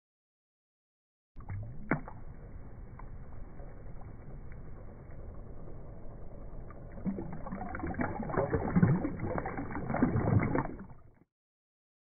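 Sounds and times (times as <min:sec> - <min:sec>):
water splashing and sloshing: 0:01.4 - 0:11.2.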